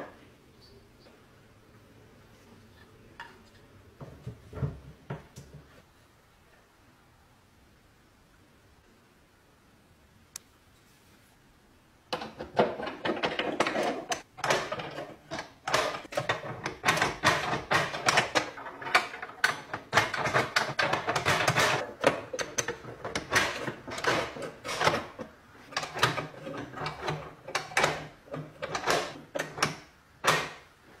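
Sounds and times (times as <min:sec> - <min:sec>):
metal lock clicking and clacking: 0:12.2 - 0:30.6.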